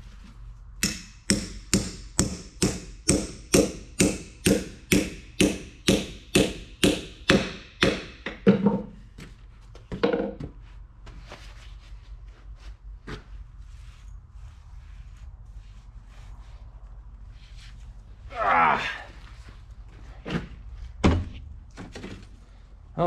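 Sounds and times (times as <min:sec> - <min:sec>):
hammer tapping steel gear: 0:00.8 - 0:08.2.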